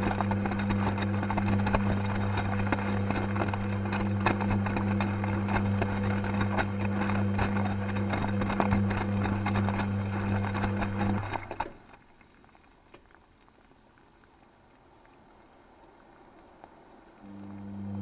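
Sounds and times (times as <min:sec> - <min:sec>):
washing machine motor humming: 0:00.0 - 0:12.0, 0:17.2 - 0:18.0
clothes sloshing and tumbling: 0:00.0 - 0:12.5.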